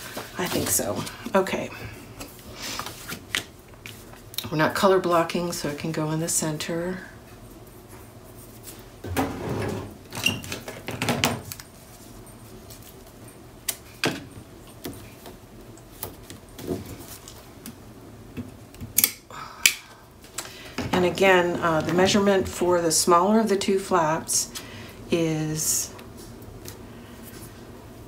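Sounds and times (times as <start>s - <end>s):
rustling of paper and tape: 0.0s - 1.5s, 11.4s - 14.0s.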